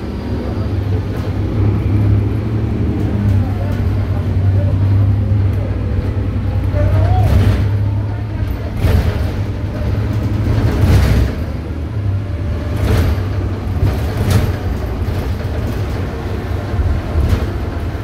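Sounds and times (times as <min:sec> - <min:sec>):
bus engine drone: 0:00.0 - 0:18.0
knocks and rattles in bus body: 0:06.2 - 0:18.0.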